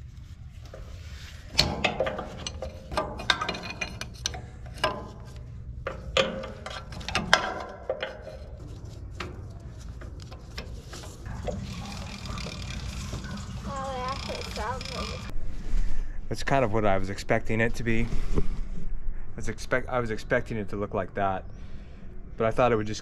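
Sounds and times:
sharp metal knocks: 1.5s - 8.6s
ratchet wrench clicking: 11.6s - 15.3s.

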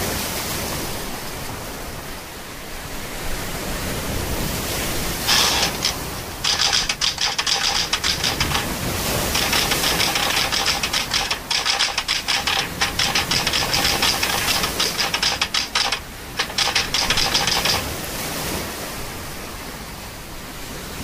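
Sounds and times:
typewriter keystroke clicks: 5.3s - 17.9s.

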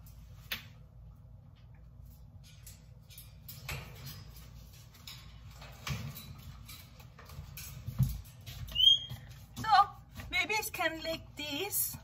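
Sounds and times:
high parrot chirp: 8.7s - 9.2s.

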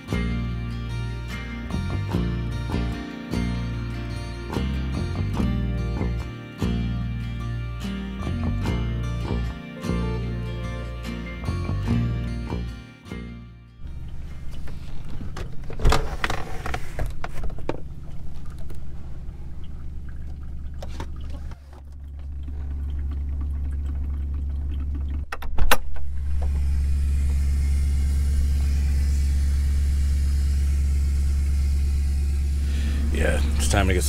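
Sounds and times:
vehicle engine idling: 13.8s - 15.8s, 16.6s - 25.3s, 26.0s - 34.0s
sharp clicks and knocks: 23.8s - 26.1s.

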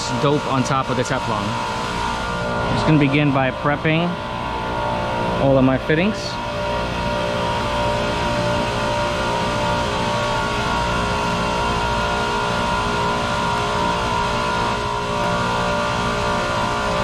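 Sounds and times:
machinery low rumble: 0.0s - 10.4s
machinery whining tones: 0.0s - 17.0s.

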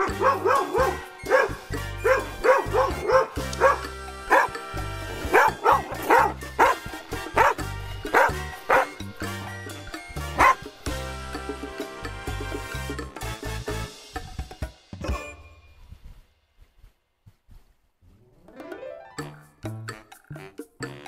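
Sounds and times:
dogs barking: 0.0s - 10.8s
background music: 0.0s - 16.0s, 18.2s - 21.0s.

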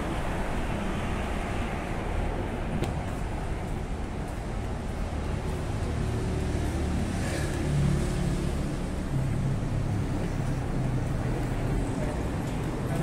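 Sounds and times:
vehicle passing: 5.2s - 13.0s.

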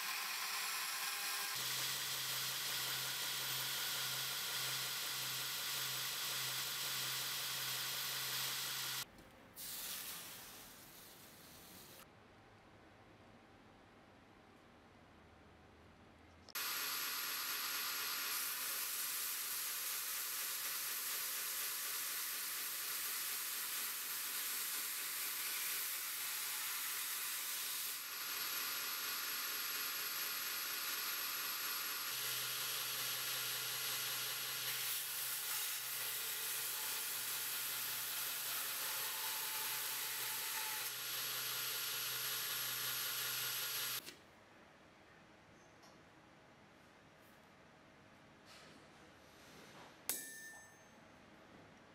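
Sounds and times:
belt grinder hissing on steel: 16.6s - 44.0s.

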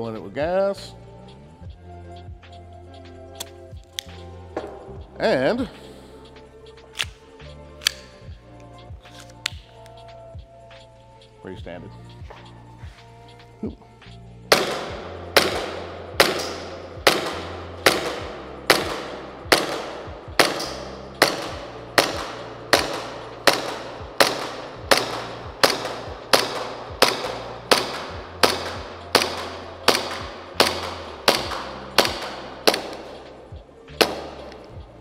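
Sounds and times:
airsoft pistol shots echoing: 14.5s - 35.0s.

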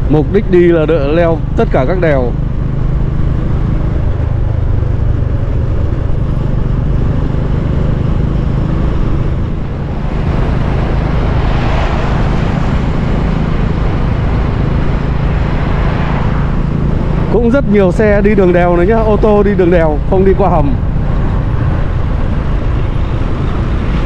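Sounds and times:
motorcycle engine running: 0.0s - 24.0s
wind noise: 2.5s - 17.5s.

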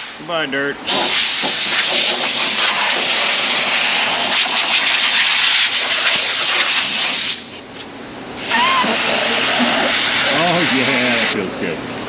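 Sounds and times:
high-pressure water jet hissing: 0.9s - 7.6s, 8.4s - 11.4s.

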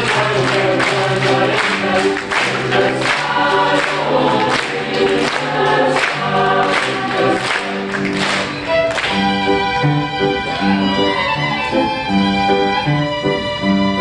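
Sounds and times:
youth choir singing: 0.0s - 8.4s.

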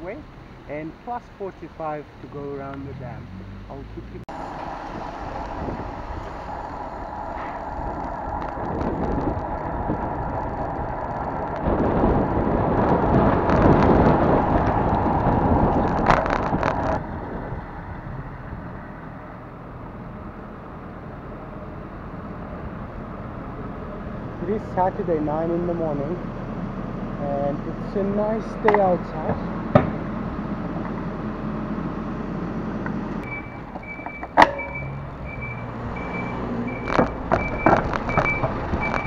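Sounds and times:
tyre and road rumble: 0.0s - 39.0s
wind on microphone: 4.3s - 19.5s, 35.2s - 39.0s
sharp clicks: 36.1s - 39.0s.

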